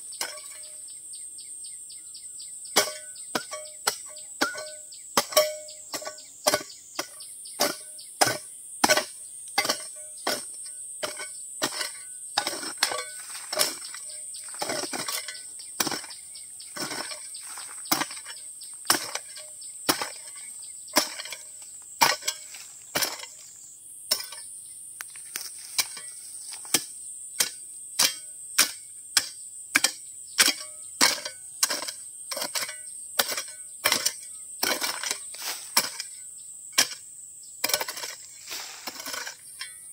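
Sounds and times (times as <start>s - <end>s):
high insect drone: 0.0s - 39.9s.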